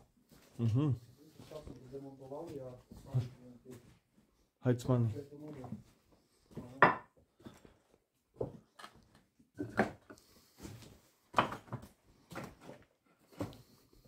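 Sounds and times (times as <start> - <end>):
footsteps on rubble and boards: 5.4 - 13.8.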